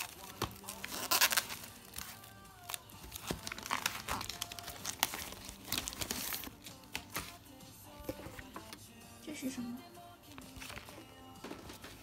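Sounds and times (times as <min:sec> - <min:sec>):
plastic wrapping crinkling: 0:00.0 - 0:07.4.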